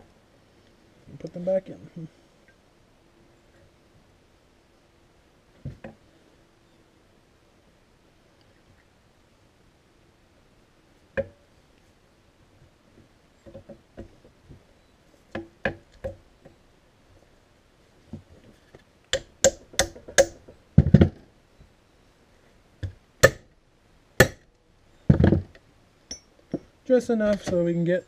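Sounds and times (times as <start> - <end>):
sharp metal clicks and knocks: 19.1 - 21.2.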